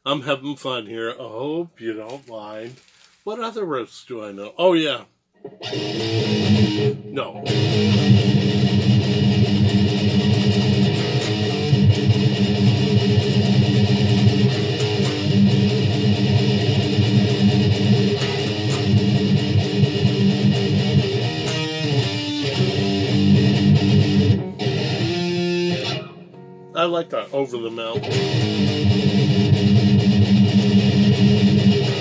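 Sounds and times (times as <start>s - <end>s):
distorted electric guitar riff: 5.4s - 32.0s.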